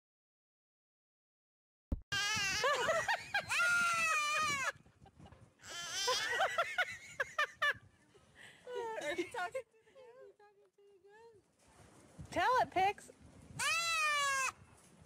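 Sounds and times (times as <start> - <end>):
baby goat bleating: 2.1 - 2.8, 3.5 - 4.7, 5.6 - 6.3, 13.6 - 14.6
toddler squealing: 2.2 - 2.8, 3.4 - 4.7, 5.6 - 6.4, 13.6 - 14.6.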